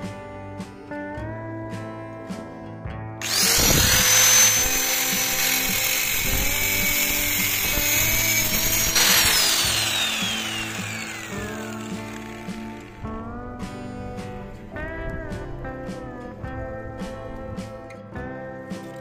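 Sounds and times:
background music: 0.0s - 19.0s
disc grinding steel: 3.2s - 13.0s
angle grinder whining: 3.2s - 13.2s.

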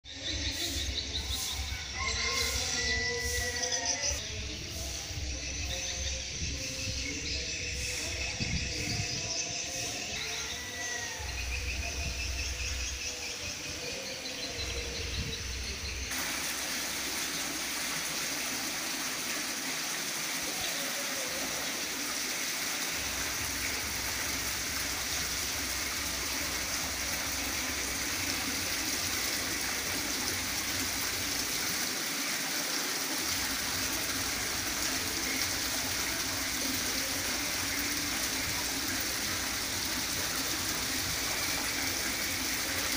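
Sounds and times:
waterfall splashing into pond: 9.9s - 42.9s.

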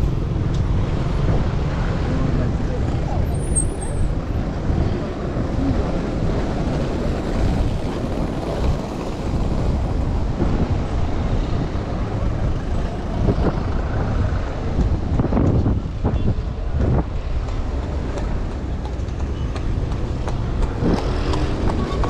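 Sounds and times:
wind noise on microphone: 0.0s - 22.0s
cars driving past: 16.8s - 22.0s.

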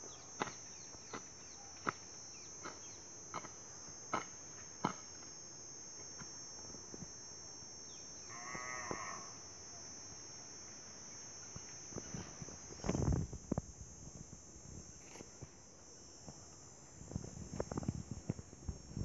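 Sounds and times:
hoe chopping into dry soil: 0.0s - 5.2s.

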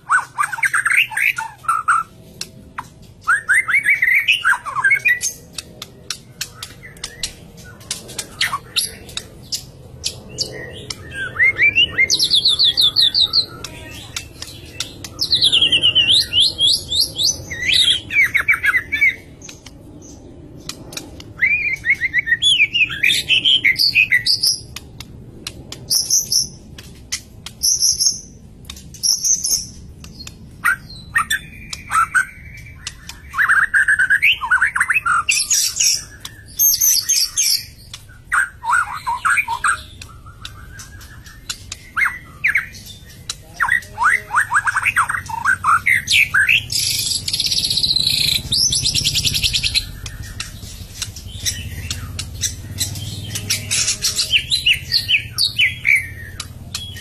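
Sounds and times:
bird singing trills: 0.0s - 57.0s
bird sharp clicks: 5.6s - 11.2s, 24.6s - 33.8s, 44.7s - 54.2s.

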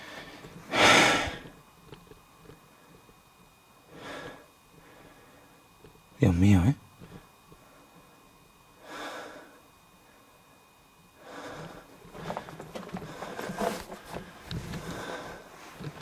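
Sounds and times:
person breathing: 0.0s - 1.6s, 3.9s - 5.7s, 8.8s - 10.3s, 11.2s - 16.0s.

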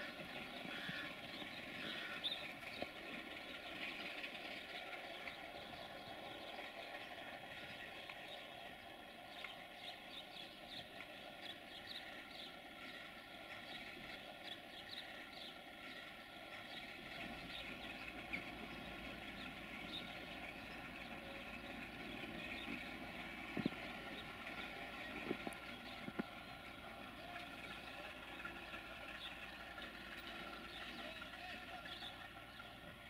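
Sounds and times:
distant diesel locomotive idling: 0.0s - 33.0s.

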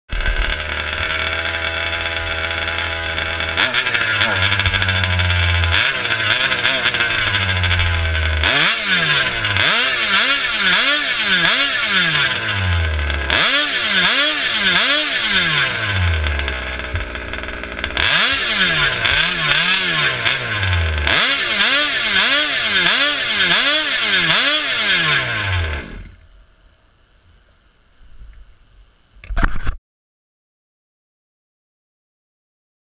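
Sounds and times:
two-stroke engine revving: 0.1s - 26.2s.

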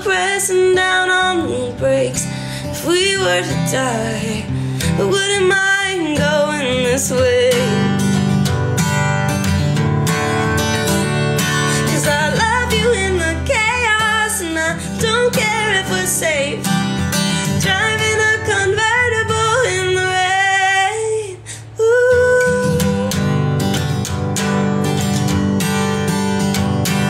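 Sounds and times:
woman singing: 0.0s - 8.4s, 11.4s - 23.6s
strummed acoustic guitar: 0.0s - 27.0s.

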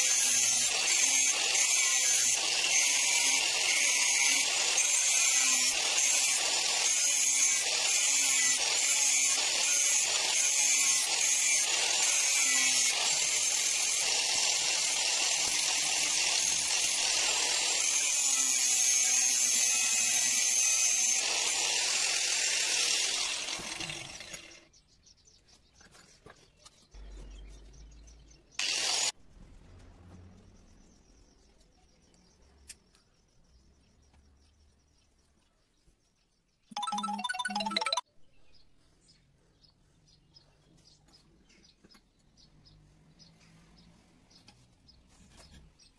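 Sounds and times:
angle grinder grinding steel: 0.0s - 24.7s, 28.6s - 29.2s.

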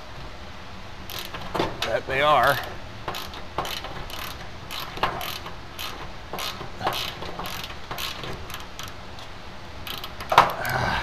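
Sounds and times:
hand ratchet clicking: 1.1s - 1.6s, 2.4s - 10.6s.

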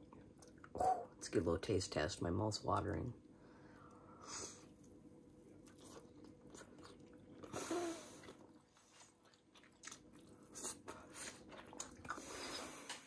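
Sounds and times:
person chewing steak: 4.6s - 13.0s.

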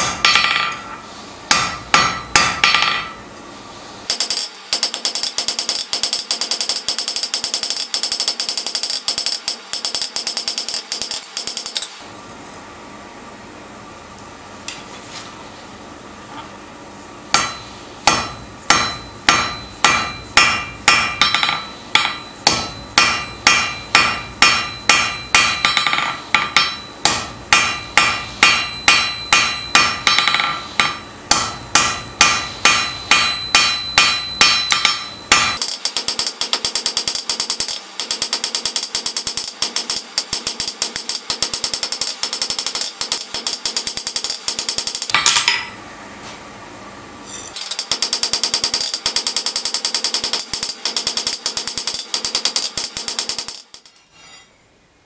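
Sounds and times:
hammer striking steel on anvil: 0.0s - 3.2s, 4.1s - 12.0s, 17.3s - 45.8s.

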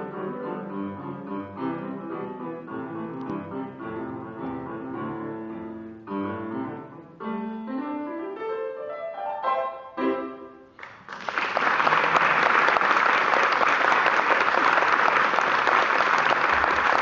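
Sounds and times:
grand piano chords: 0.0s - 10.8s
audience applause: 10.8s - 17.0s.

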